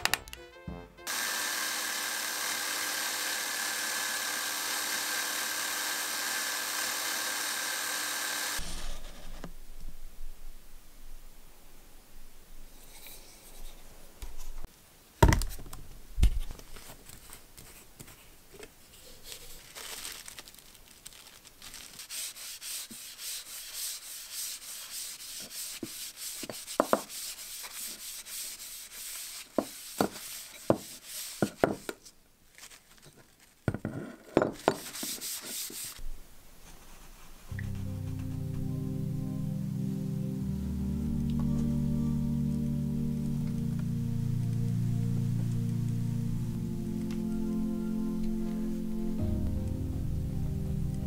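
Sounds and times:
cloth rubbing on wooden handle: 21.7s - 31.9s, 34.6s - 36.0s, 36.6s - 38.4s.

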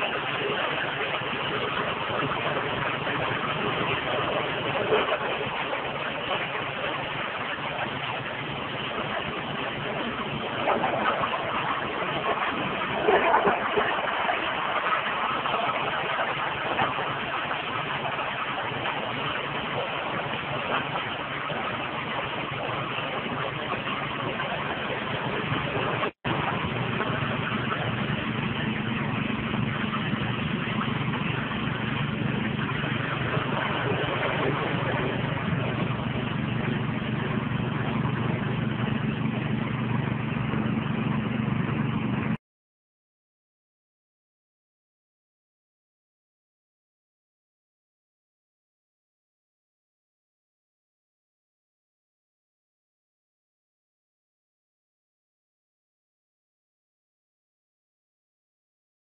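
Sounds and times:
engine hum: 0.0s - 42.4s.

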